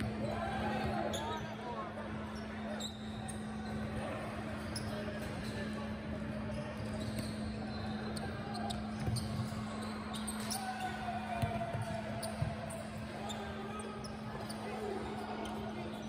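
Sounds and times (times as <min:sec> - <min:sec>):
shoe squeaks: 0:00.8 - 0:01.7, 0:02.3 - 0:03.9, 0:04.6 - 0:05.9, 0:06.5 - 0:11.2, 0:11.8 - 0:16.0
basketball bouncing on court: 0:08.6 - 0:09.6, 0:11.3 - 0:12.8.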